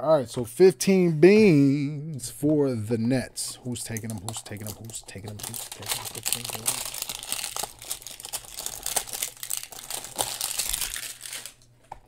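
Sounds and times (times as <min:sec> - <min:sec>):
plastic wrappers crinkling: 0:03.8 - 0:12.0.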